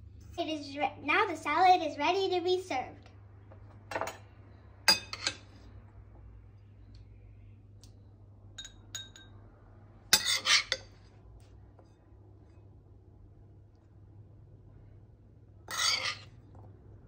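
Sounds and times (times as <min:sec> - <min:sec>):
metal spoon clinking on bowls: 0:04.9 - 0:05.5, 0:08.6 - 0:09.4, 0:10.2 - 0:10.9, 0:15.7 - 0:16.4.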